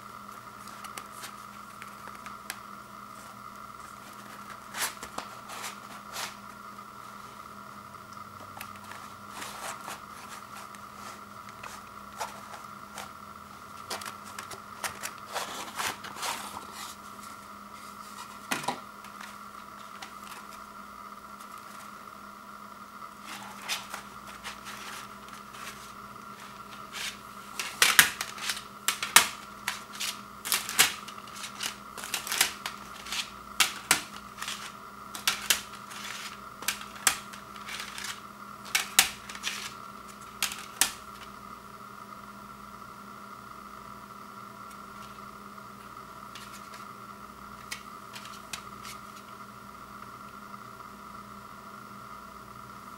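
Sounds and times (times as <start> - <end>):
plastic cd cases clicking: 13.7 - 16.4, 23.3 - 41.3, 47.6 - 49.3.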